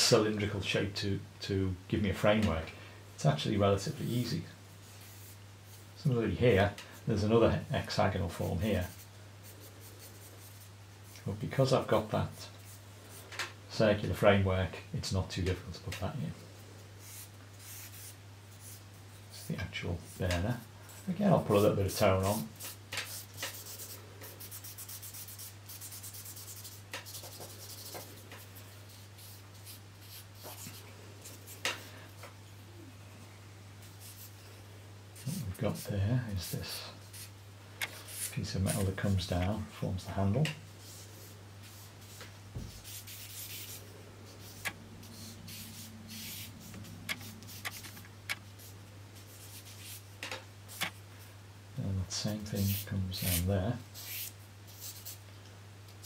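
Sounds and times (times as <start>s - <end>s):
steady low hum: 0.0s - 55.8s
charcoal scratching on paper: 8.3s - 10.7s, 17.0s - 31.6s, 33.9s - 34.4s, 35.2s - 39.3s, 40.8s - 50.1s, 52.5s - 55.2s.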